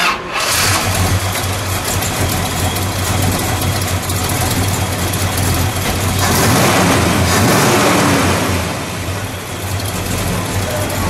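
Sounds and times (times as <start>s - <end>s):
engine idling: 0.3s - 11.0s.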